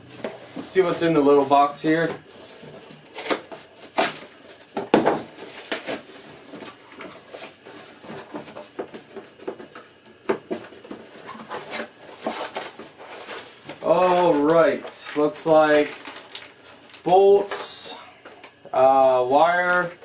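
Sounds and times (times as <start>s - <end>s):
cardboard scraping and rustling: 0.0s - 16.5s
packing tape peeled: 3.0s - 4.7s, 10.9s - 17.1s.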